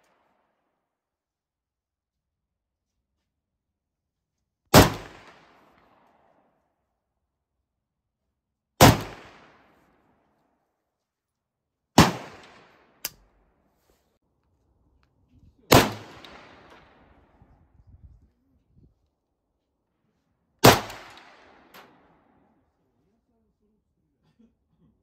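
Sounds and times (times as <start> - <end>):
rifle gunshots with echo: 4.7 - 6.2, 8.8 - 9.8, 12.0 - 13.0, 15.7 - 17.4, 20.6 - 22.2.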